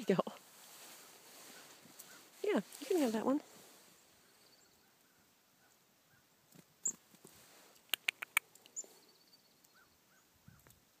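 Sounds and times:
sharp clicks: 0:07.7 - 0:08.8.

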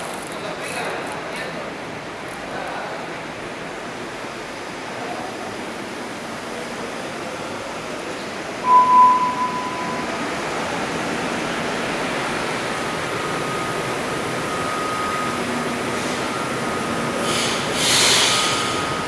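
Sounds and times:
train equipment and ventilation hum: 0:00.0 - 0:19.0
short high beep: 0:08.6 - 0:10.4
burst of hiss: 0:17.2 - 0:18.8.

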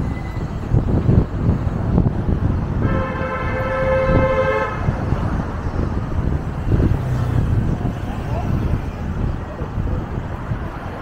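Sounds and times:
low rumble of street traffic: 0:00.0 - 0:11.0
vehicle horn: 0:02.8 - 0:05.0.

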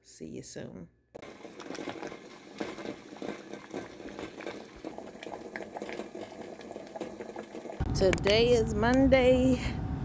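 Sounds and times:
water boiling in a pot: 0:01.2 - 0:08.2.

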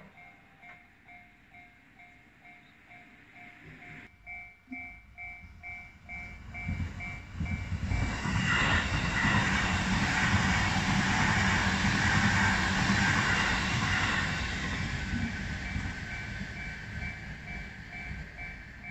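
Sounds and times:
level crossing warning bell: 0:00.0 - 0:10.0, 0:13.1 - 0:18.9
train wheels rumbling on rails: 0:05.2 - 0:18.9.

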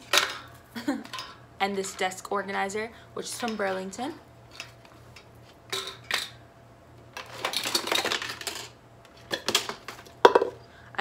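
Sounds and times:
small hard objects rattling: 0:07.2 - 0:10.6.

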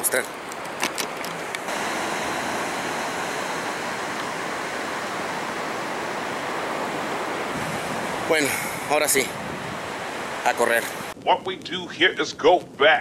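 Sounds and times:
ocean surf breaking: 0:01.4 - 0:11.2.

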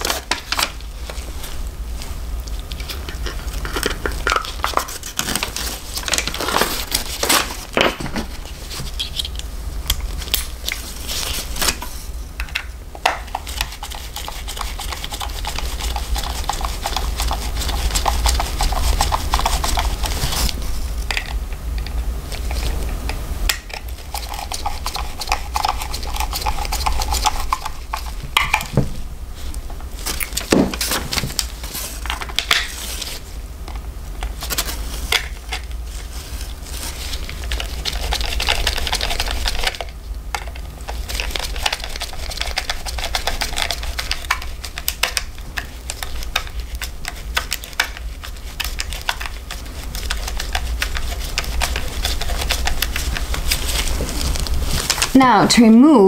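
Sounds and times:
steady low hum: 0:00.0 - 0:56.0.

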